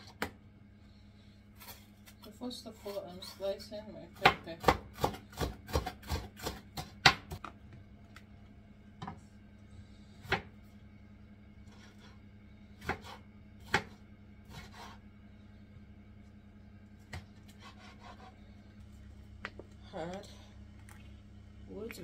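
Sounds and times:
knife chopping on cutting board: 0:04.2 - 0:07.5, 0:10.2 - 0:10.5, 0:12.8 - 0:15.0, 0:17.1 - 0:18.3.

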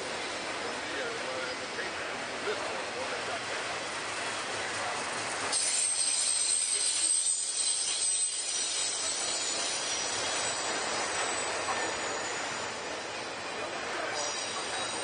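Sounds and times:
train cars rolling: 0:00.0 - 0:15.0
train wheels squealing on rails: 0:00.0 - 0:15.0.

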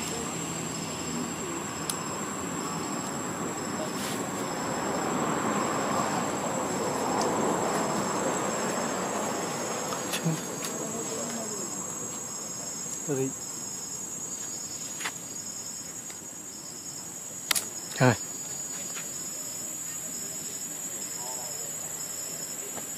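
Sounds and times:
broad rushing noise: 0:00.0 - 0:12.0
insect chirp: 0:00.0 - 0:22.9
insects droning: 0:00.0 - 0:22.9.

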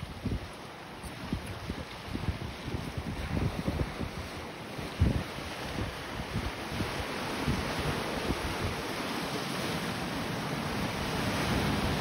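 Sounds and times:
ocean surf washing over rocks: 0:00.0 - 0:12.0
wind buffeting microphone: 0:00.0 - 0:12.0.

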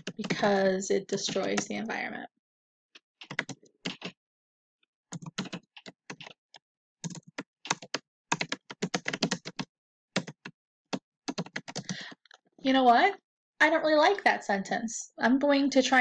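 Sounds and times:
typing on computer keyboard: 0:03.2 - 0:04.2, 0:05.1 - 0:06.4, 0:07.0 - 0:12.2.

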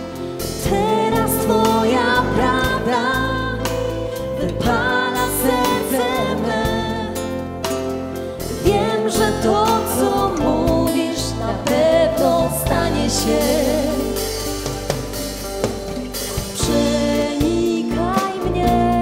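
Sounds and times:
person singing: 0:00.0 - 0:07.6, 0:08.4 - 0:14.6, 0:16.5 - 0:19.0
worship band music: 0:00.0 - 0:19.0.

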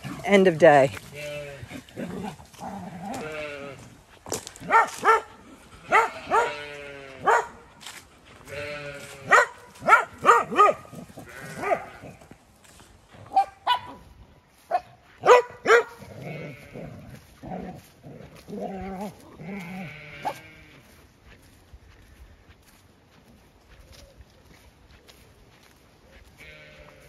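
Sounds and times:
sheep bleating: 0:00.9 - 0:04.9, 0:05.5 - 0:07.5, 0:08.3 - 0:09.8, 0:10.8 - 0:12.3, 0:15.9 - 0:21.0, 0:26.3 - 0:27.0
dog barking: 0:04.6 - 0:07.7, 0:09.2 - 0:12.2, 0:13.3 - 0:14.0, 0:14.7 - 0:16.1.

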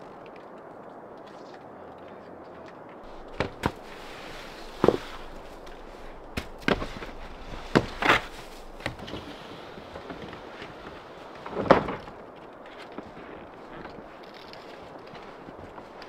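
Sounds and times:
shovels digging in snow: 0:03.1 - 0:09.7.

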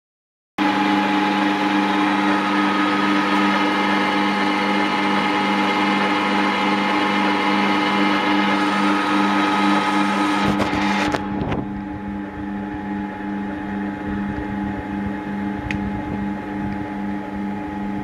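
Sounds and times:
metal lathe whine and hum: 0:00.6 - 0:18.0
tool cutting spinning metal: 0:00.7 - 0:11.5.

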